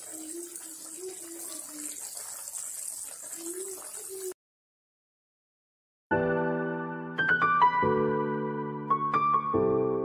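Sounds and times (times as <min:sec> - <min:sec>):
curry boiling and bubbling: 0:00.0 - 0:04.4.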